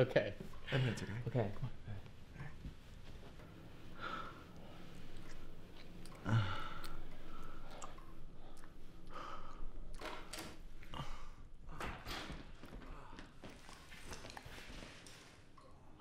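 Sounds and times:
person breathing and sighing: 3.9 - 10.2, 10.8 - 13.6.

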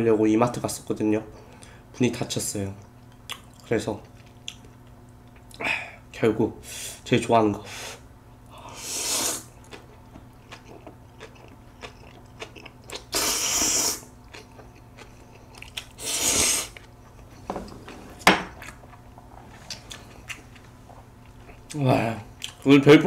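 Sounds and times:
wet chewing clicks: 9.6 - 13.2, 14.2 - 16.0, 22.4 - 22.7.

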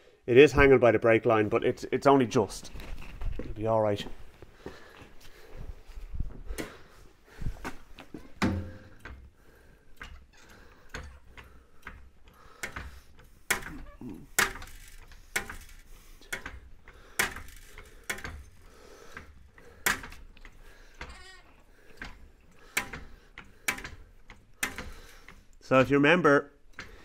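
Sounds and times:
sharp clicks and knocks: 8.1 - 9.3, 9.9 - 21.2, 21.8 - 25.6, 26.6 - 27.0
trolley jack pumping: 9.9 - 25.6.

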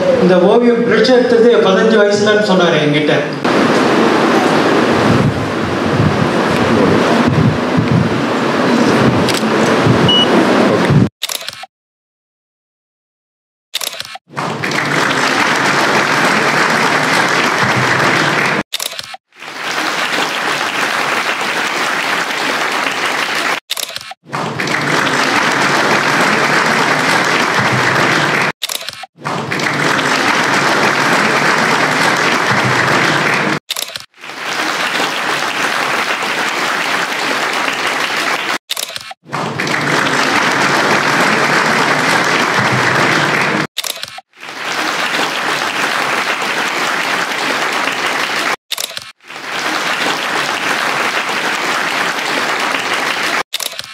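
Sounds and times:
audience applauding: 14.3 - 18.6, 19.3 - 23.6, 24.3 - 28.6, 29.2 - 38.6, 39.3 - 43.7, 44.3 - 53.5.

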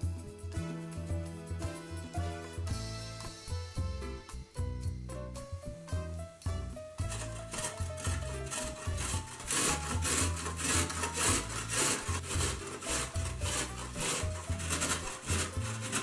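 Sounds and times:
carrot grating on metal grater: 7.0 - 16.0.

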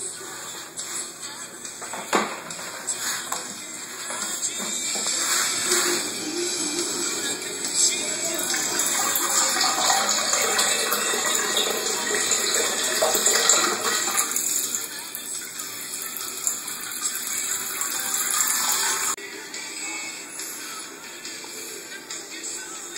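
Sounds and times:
water running from a tap: 7.7 - 19.2.

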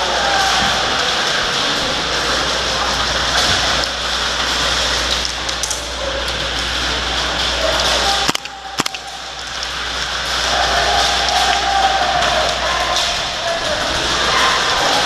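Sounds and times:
noisy din: 5.9 - 15.0
airsoft rifle shots: 8.3 - 9.2.

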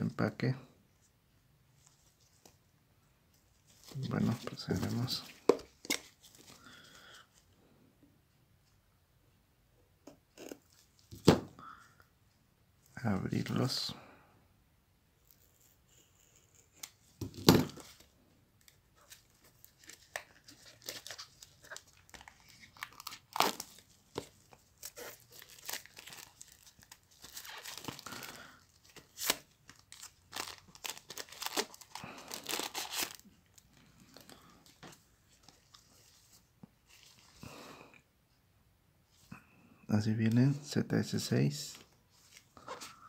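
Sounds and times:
plastic wrap crinkling and tearing: 19.0 - 34.5.

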